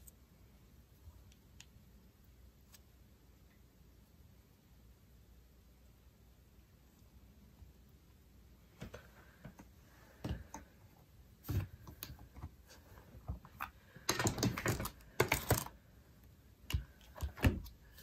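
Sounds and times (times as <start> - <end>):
rapid plastic clicks and rustles: 13.9 - 15.8.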